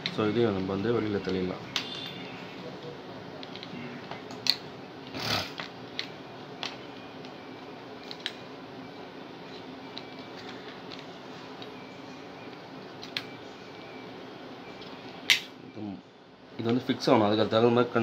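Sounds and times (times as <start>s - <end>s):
wires clicking and rustling: 0.0s - 7.4s.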